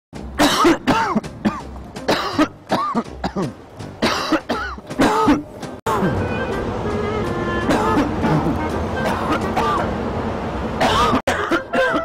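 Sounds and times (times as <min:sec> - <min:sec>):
person coughing hard: 0:00.4 - 0:06.2, 0:07.7 - 0:09.9, 0:10.8 - 0:12.0.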